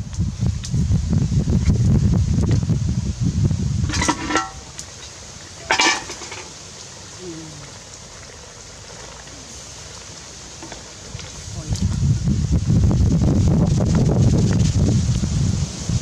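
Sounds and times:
metal pot lid clanking: 3.8 - 4.7, 5.6 - 6.6
ringing metal scrape: 3.9 - 4.6.

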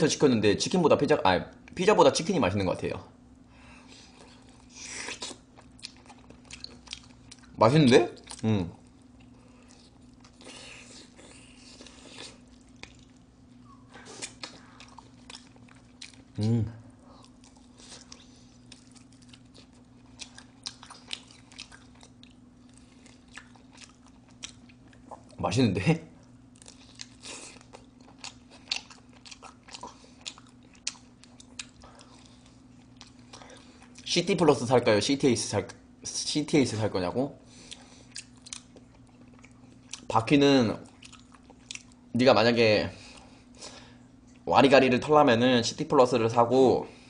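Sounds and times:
faint steady hum: 0.0 - 47.0
wet chewing and smacking: 3.9 - 16.4, 17.0 - 25.4, 26.2 - 34.1, 37.6 - 42.1
biting and chewing: 26.2 - 34.1.

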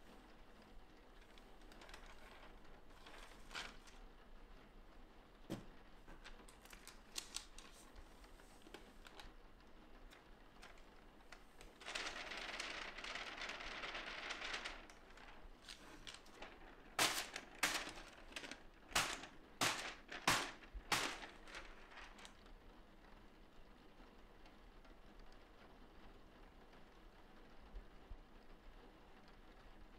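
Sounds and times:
paper rustling: 1.2 - 4.1, 5.5 - 9.4, 10.1 - 22.4
paper snapping and tapping: 5.5 - 9.3, 13.8 - 22.3
small clicks: 6.1 - 22.4
powder sliding off paper: 14.2 - 22.3.

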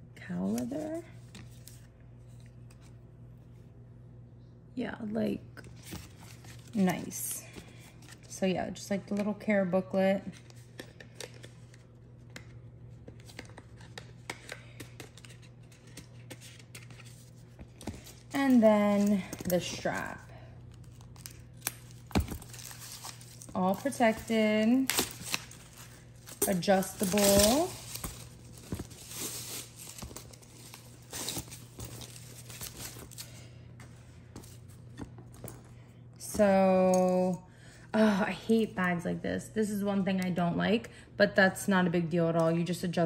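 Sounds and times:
faint steady hum: 0.0 - 43.0
wrapping crinkling and tearing: 13.2 - 33.4.

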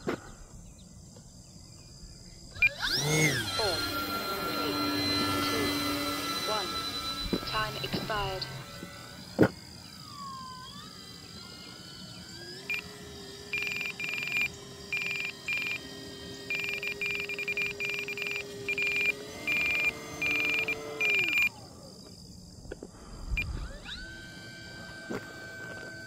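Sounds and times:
electric motor whine: 0.0 - 26.0
short high alarm beeps: 13.6 - 15.8, 16.5 - 21.5.

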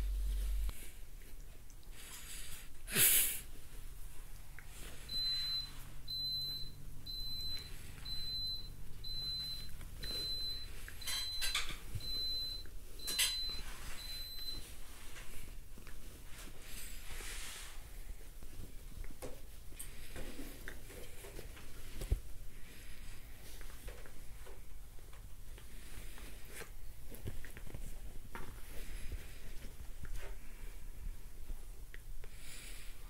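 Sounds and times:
rustling and scuffing on bedding: 13.3 - 24.7.

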